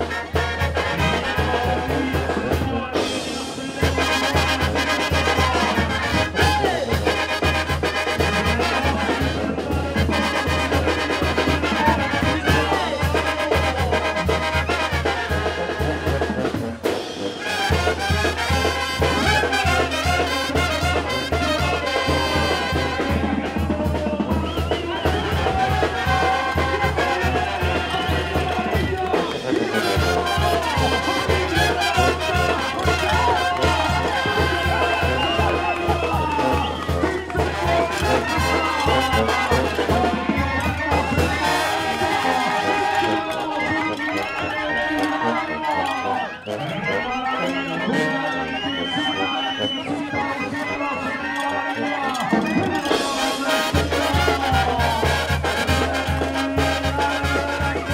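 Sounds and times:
brass band playing: 0:00.0 - 0:57.9.

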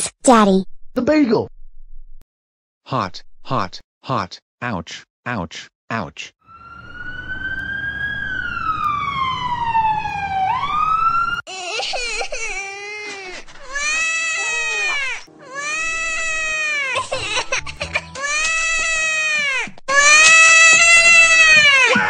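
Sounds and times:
ambulance siren wailing: 0:06.5 - 0:11.5
cartoon child crying: 0:11.5 - 0:22.0.

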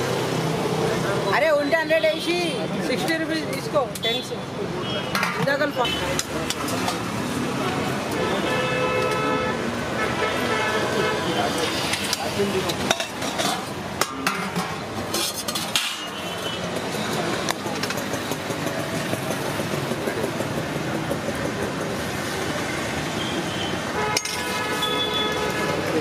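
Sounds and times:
traffic noise: 0:00.0 - 0:26.0
metal ladle clinking on pots: 0:05.1 - 0:07.1, 0:11.8 - 0:16.4, 0:24.1 - 0:25.5.

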